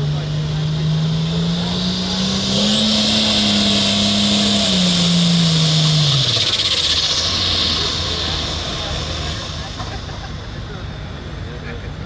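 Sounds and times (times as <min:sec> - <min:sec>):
diesel engine at high revs: 0:00.0 - 0:12.0
turbo whine and hiss: 0:02.6 - 0:10.9.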